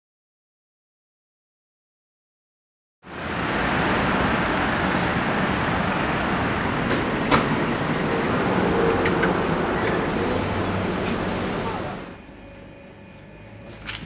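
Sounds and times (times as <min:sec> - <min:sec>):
street traffic rumble: 0:03.0 - 0:14.0.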